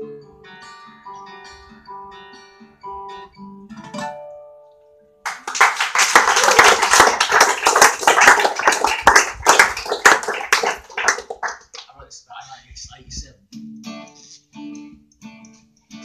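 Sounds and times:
acoustic guitar: 0:00.0 - 0:05.4, 0:07.2 - 0:16.0
audience applause: 0:05.2 - 0:11.9.

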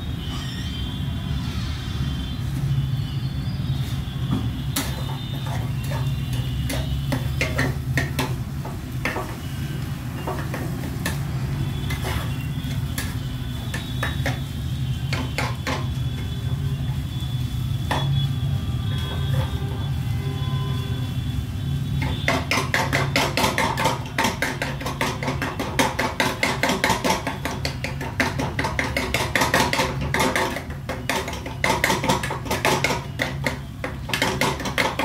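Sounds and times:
metal spatula scraping pan: 0:04.7 - 0:16.0, 0:18.9 - 0:20.0, 0:21.9 - 0:35.0.

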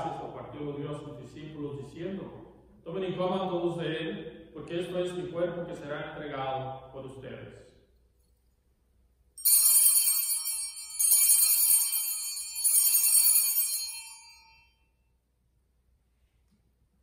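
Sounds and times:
altar bells jingling: 0:09.4 - 0:14.9.

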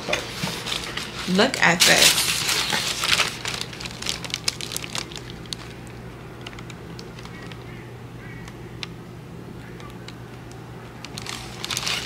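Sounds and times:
tissue paper crinkling: 0:00.2 - 0:07.7, 0:11.1 - 0:12.0.

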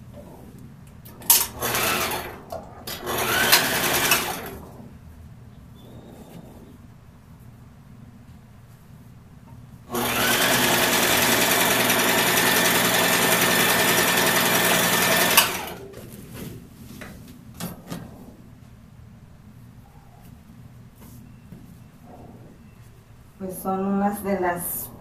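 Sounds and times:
electric sewing machine running: 0:01.3 - 0:04.6, 0:09.9 - 0:15.9.

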